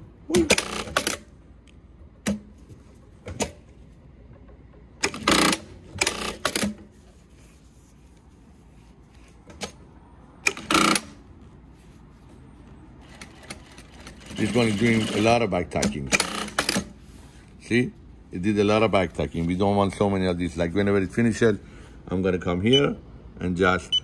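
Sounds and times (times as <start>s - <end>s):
sewing machine stitching: 13.0s - 15.4s, 16.2s - 16.9s.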